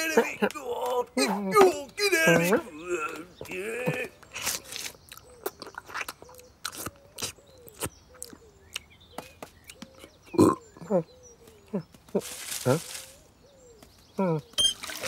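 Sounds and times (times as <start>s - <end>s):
throaty mouth sounds: 2.9s - 9.0s, 9.6s - 10.9s.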